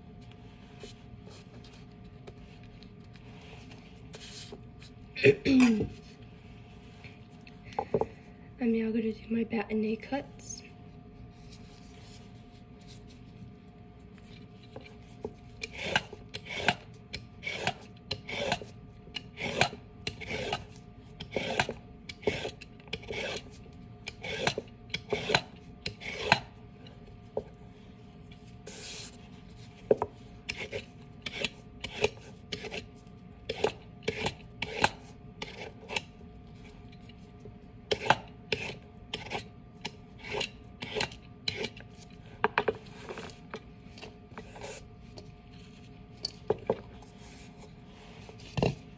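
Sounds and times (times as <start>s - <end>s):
peeler scraping carrot: 15.6s - 26.5s, 30.5s - 32.9s, 33.5s - 36.1s, 37.9s - 41.8s.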